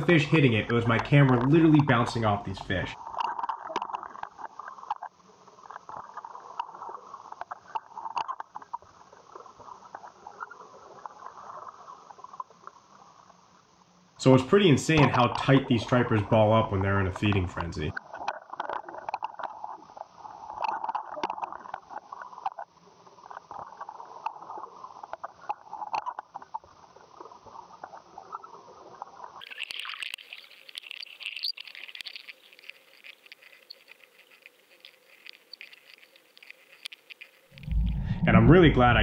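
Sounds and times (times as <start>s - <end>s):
muffled underwater rush: 0.0s - 3.1s, 37.5s - 39.0s.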